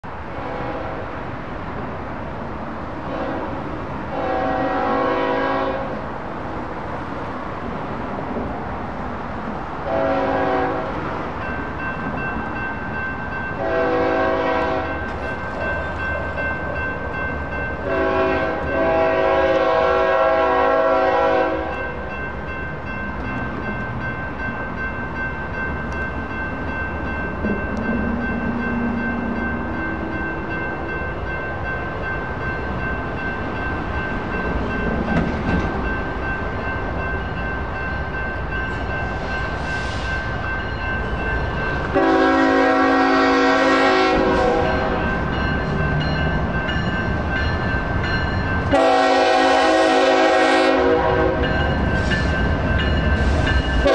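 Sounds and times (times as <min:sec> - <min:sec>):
train rumble: 0:00.0 - 0:53.9
locomotive air horn blasts: 0:00.4 - 0:01.1, 0:03.1 - 0:06.0, 0:09.9 - 0:11.0, 0:13.6 - 0:15.0, 0:17.8 - 0:21.9, 0:41.9 - 0:45.0, 0:48.7 - 0:51.5
electronic crossing bell ringing: 0:14.8 - 0:17.9, 0:21.8 - 0:35.0, 0:35.8 - 0:41.9, 0:44.7 - 0:48.7.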